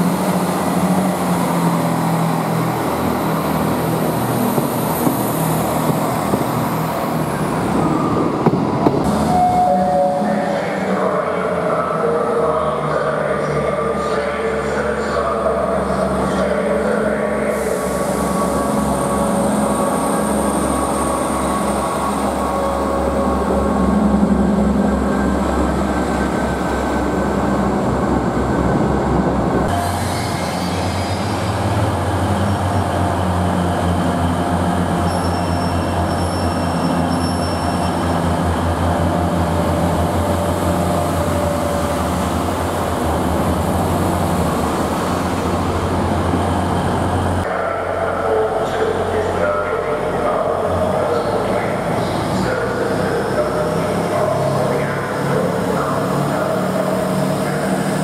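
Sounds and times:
deep diesel drone: 0:00.0 - 0:58.0
train diesel engine pulling away: 0:00.0 - 0:58.0
faint high squeals: 0:35.0 - 0:38.2.

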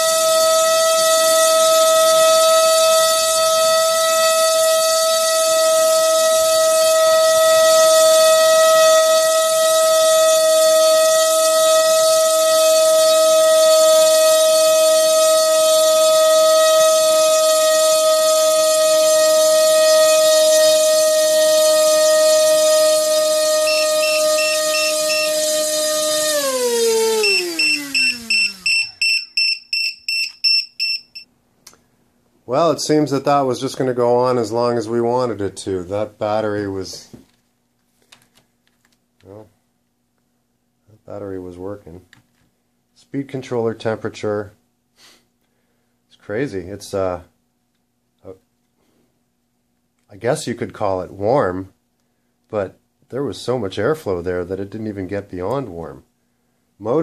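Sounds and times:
electric motor propeller whine: 0:00.0 - 0:29.1
rapid high alarm beeps: 0:27.2 - 0:31.2.

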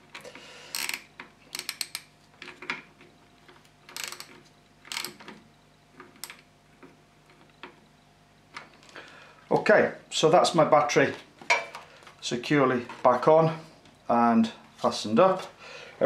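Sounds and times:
socket ratchet clicking: 0:00.7 - 0:02.1, 0:03.9 - 0:05.3.

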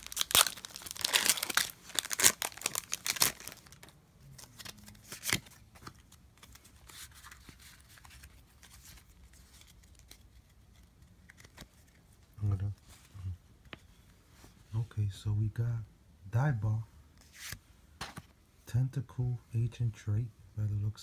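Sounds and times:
foil wrapper tearing and crinkling: 0:00.0 - 0:03.8
sharp foil crackle: 0:00.0 - 0:03.8
cards rustling: 0:00.0 - 0:14.1.

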